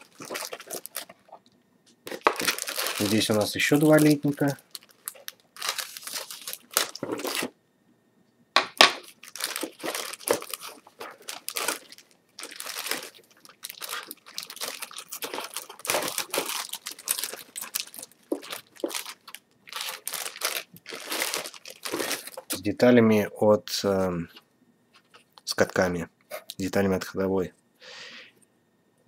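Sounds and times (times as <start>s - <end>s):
plastic bag crinkling: 0.0s - 7.6s, 8.8s - 22.8s.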